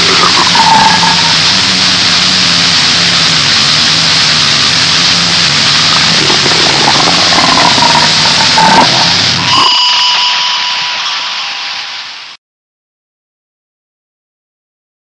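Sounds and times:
short pitched squeal: 0.0s - 2.0s, 6.3s - 12.1s
distorted static noise: 0.0s - 12.4s
low steady drone: 0.0s - 12.4s.

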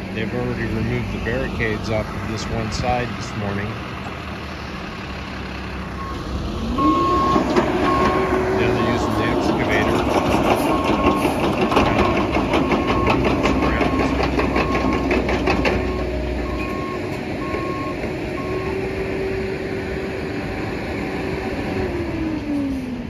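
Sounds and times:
mini excavator engine running: 0.0s - 23.0s
travel alarm beeping: 6.8s - 9.2s, 12.0s - 15.1s, 15.8s - 18.8s
rapid metallic clacks: 9.4s - 16.0s.

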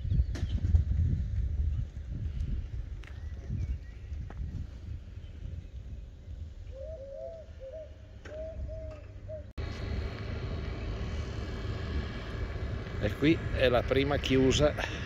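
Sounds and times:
wind on microphone: 0.0s - 9.0s
pigeon cooing: 6.7s - 9.5s.

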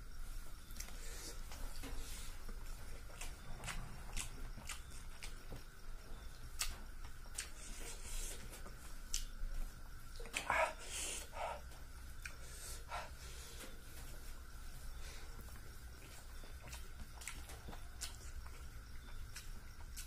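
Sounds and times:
close-up chewing: 0.6s - 13.6s, 14.9s - 20.0s.

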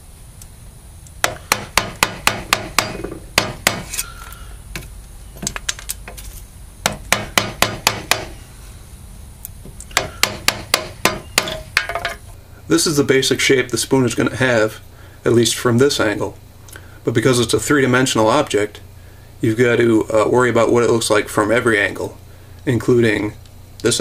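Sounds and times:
mallet striking chisel: 1.2s - 4.0s, 6.8s - 8.4s, 9.9s - 12.2s.

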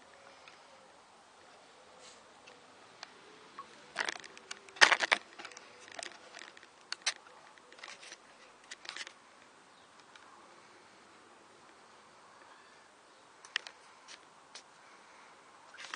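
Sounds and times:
camera handling clicks and rustles: 3.9s - 9.2s.

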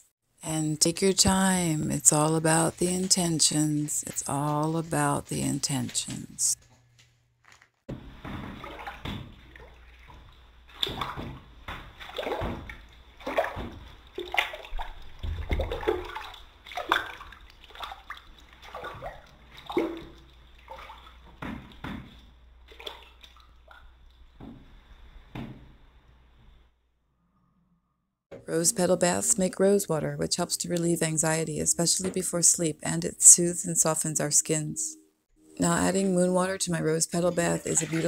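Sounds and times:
hand sloshing bathtub water: 0.8s - 6.6s, 7.9s - 25.9s, 35.6s - 38.0s.

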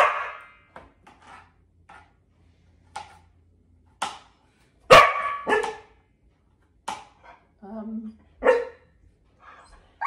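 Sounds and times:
dog barking: 0.0s - 0.5s, 4.9s - 5.9s, 8.4s - 8.9s.

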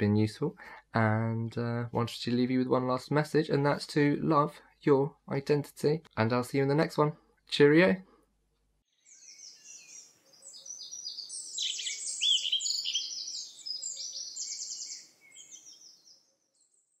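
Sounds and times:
songbirds chirping: 8.8s - 17.0s.

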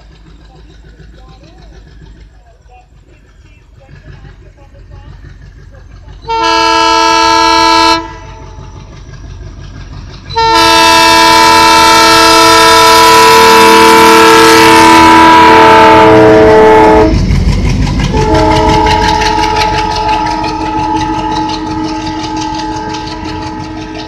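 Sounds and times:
diesel engine chugging: 0.0s - 24.0s
locomotive horn blast: 6.3s - 8.6s, 10.3s - 17.2s, 18.1s - 24.0s.

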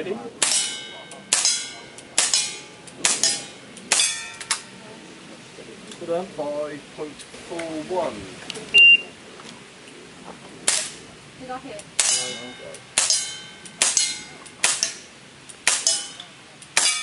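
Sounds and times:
pistol shots: 0.4s - 4.6s, 12.0s - 15.0s, 15.6s - 17.0s
metallic ring of struck plate: 0.4s - 4.7s, 12.0s - 15.1s, 15.7s - 17.0s.

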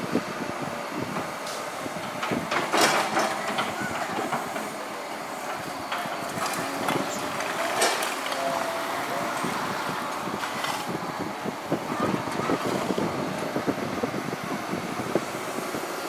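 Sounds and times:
excavator engine running: 0.0s - 16.0s
steel tracks clattering: 1.2s - 13.7s
rubble shifting: 2.0s - 14.4s.

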